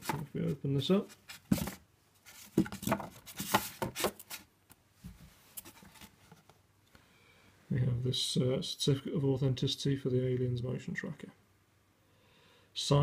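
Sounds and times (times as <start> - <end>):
card scraping and rustling: 1.1 - 4.5.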